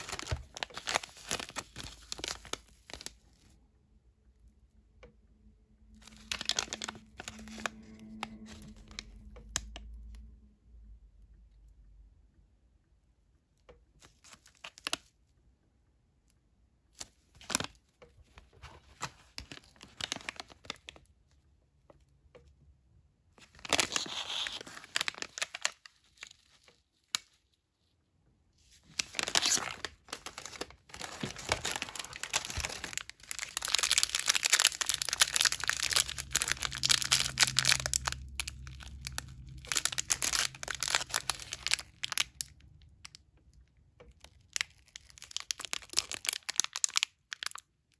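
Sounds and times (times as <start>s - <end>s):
plastic pouches crinkling: 0.0s - 3.5s, 6.0s - 9.4s, 17.0s - 21.1s, 23.4s - 27.5s, 28.7s - 43.2s, 44.1s - 47.7s.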